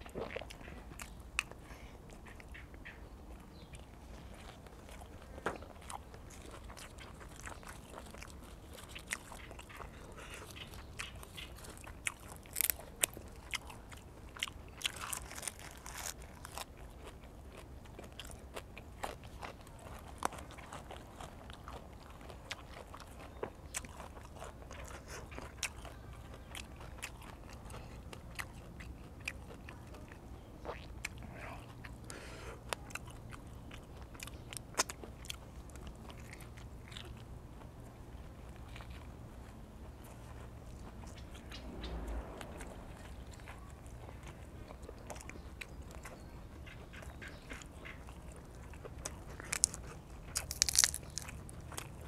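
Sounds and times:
person chewing leafy greens: 0.0 - 52.0.

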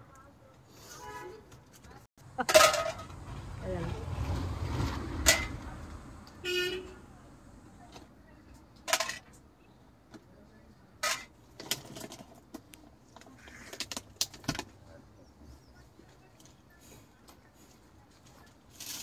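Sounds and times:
vehicle horn toot: 6.4 - 7.0.

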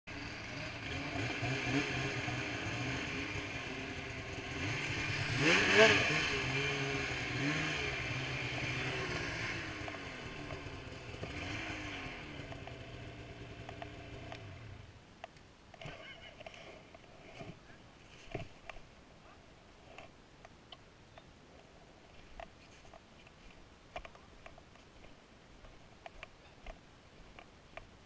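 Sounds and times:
snowmobile engine revving: 0.1 - 14.8.

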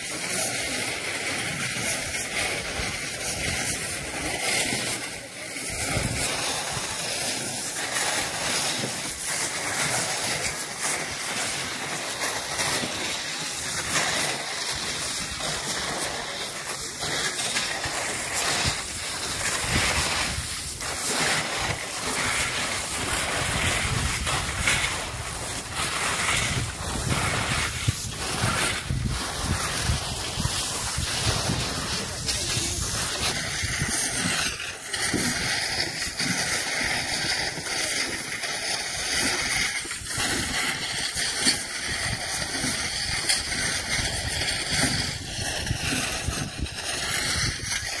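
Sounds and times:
wind blowing across microphone: 1.3 - 11.3, 12.0 - 48.0.

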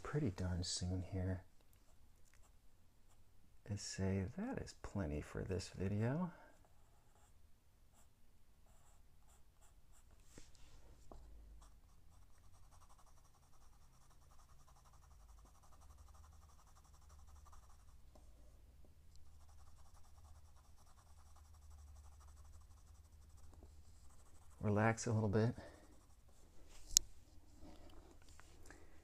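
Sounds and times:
pencil scratching on paper: 6.6 - 8.1, 8.7 - 10.1, 11.6 - 18.0, 19.3 - 26.4.

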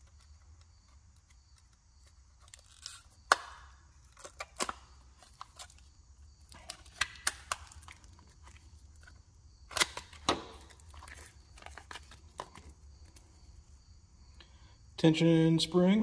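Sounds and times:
sharp snaps: 3.2 - 3.8
paper rustling: 9.9 - 13.2.

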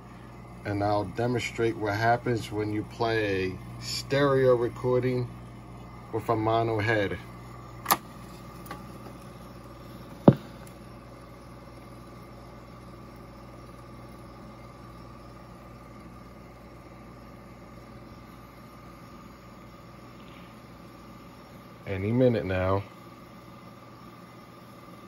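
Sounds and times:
tape recorder hum and hiss: 0.0 - 25.0
sharp mechanical click: 7.8 - 8.0.

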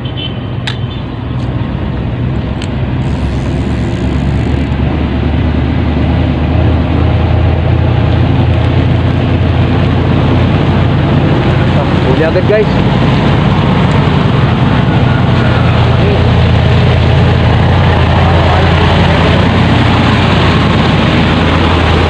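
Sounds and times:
low engine rumble: 1.2 - 22.0.

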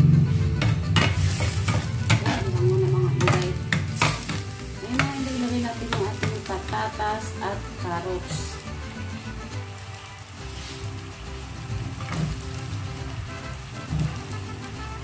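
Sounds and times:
spatula scraping a pan: 0.3 - 6.5, 10.4 - 10.9
meat sizzling in a pan: 0.9 - 15.0.

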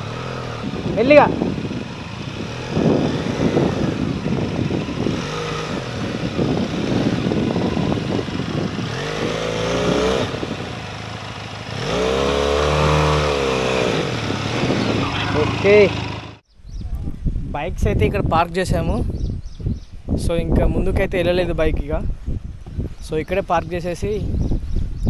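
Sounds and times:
motorcycle engine revving: 0.0 - 16.5.

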